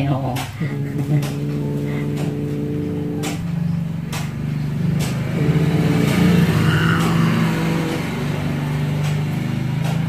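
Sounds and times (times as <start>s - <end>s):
cat growling: 0.6s - 8.3s.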